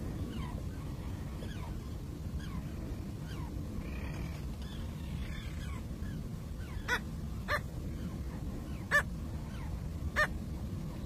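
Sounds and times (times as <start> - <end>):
tern yapping calls: 8.8 - 10.4.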